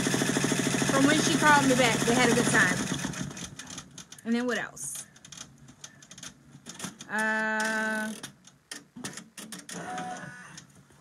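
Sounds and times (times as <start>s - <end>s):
embroidery machine stitching: 0.0s - 3.9s, 9.1s - 10.6s.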